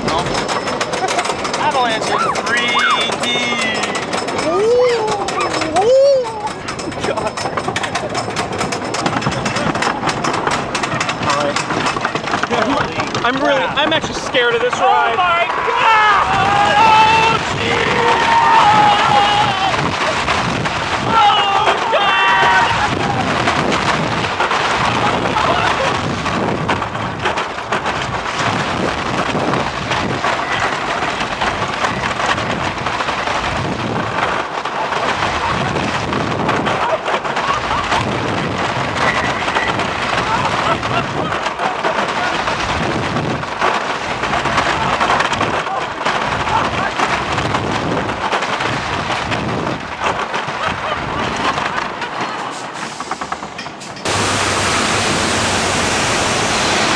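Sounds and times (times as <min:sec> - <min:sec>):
roller coaster rumbling and clattering: 0:00.0 - 0:56.9
waterfall rushing: 0:54.0 - 0:56.9.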